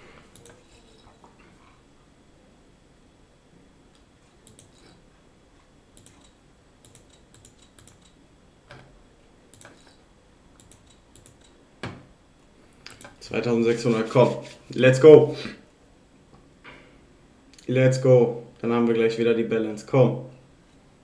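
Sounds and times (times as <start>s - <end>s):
computer mouse clicks: 0.3s - 1.0s, 4.0s - 5.0s, 5.9s - 8.8s, 9.5s - 10.0s, 10.6s - 11.6s, 12.8s - 13.2s.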